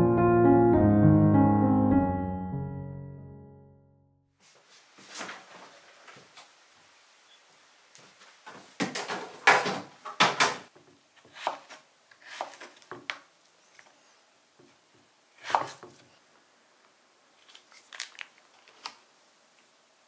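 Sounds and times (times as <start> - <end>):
knife cutting on wooden board: 11.2 - 12.9, 15.4 - 16.0.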